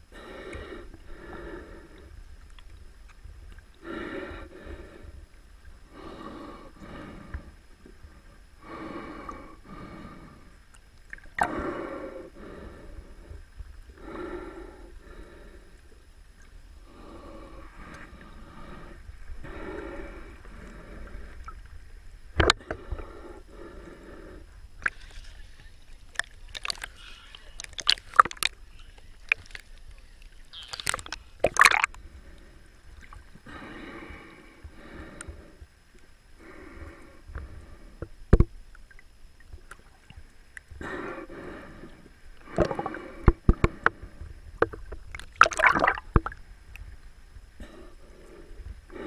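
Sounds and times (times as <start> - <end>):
sharp splashes: 45.3 - 46.3.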